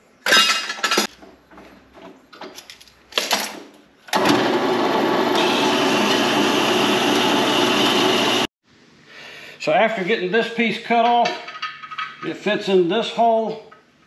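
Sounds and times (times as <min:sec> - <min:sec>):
bandsaw running: 0:04.2 - 0:08.5.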